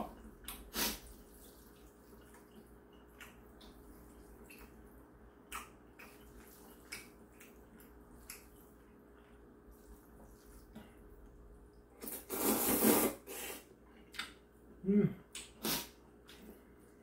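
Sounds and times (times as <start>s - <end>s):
person chewing and slurping noodles: 0.0s - 14.3s
low steady hum: 0.0s - 17.0s.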